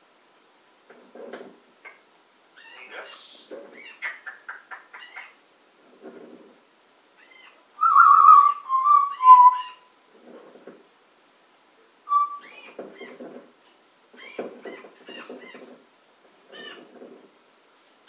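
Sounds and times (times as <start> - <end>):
parrot chattering calls: 2.6 - 5.4, 7.2 - 9.9, 12.1 - 12.7
parrot whistling: 7.8 - 9.9, 12.1 - 12.6.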